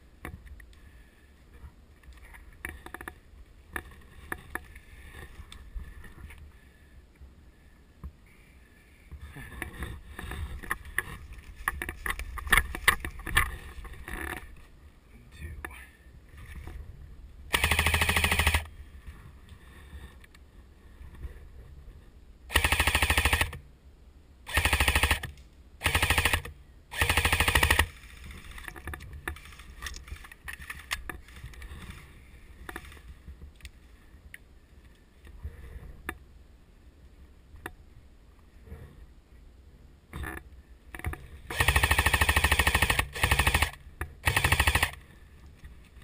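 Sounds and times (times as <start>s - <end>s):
airsoft rifle firing bursts: 17.5s - 18.7s, 22.5s - 23.6s, 24.5s - 28.0s, 41.5s - 45.0s.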